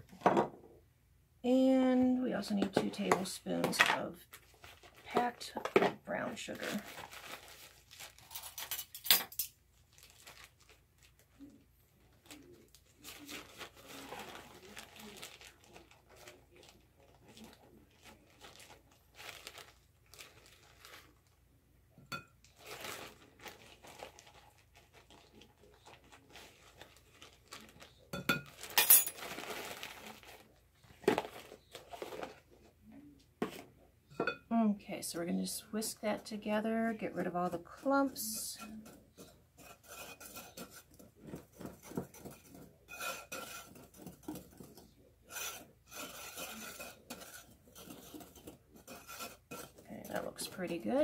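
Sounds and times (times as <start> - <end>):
plastic bag crinkling: 4.1 - 5.5, 6.3 - 21.4, 22.4 - 32.6.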